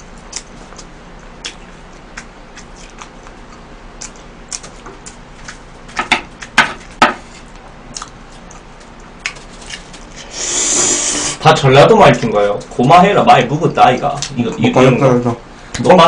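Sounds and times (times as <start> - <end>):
chewing: 0.0 - 6.6, 7.4 - 10.3.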